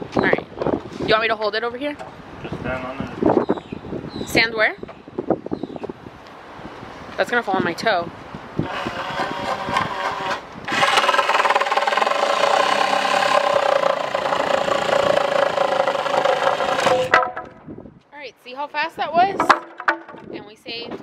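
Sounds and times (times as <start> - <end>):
reciprocating saw cutting wood: 8.6 - 17.5
scattered knocks: 8.6 - 17.6, 19.3 - 20.4.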